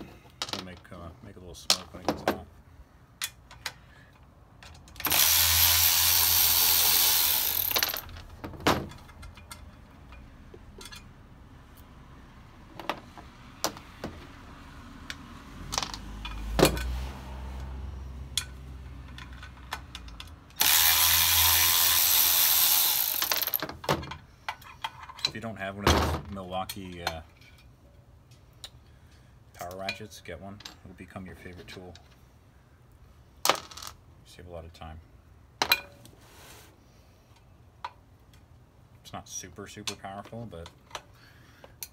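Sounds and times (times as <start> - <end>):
cordless power ratchet running: 5.0 - 8.1, 20.6 - 23.6
light metal clicks and knocks: 8.2 - 11.2, 18.4 - 20.6.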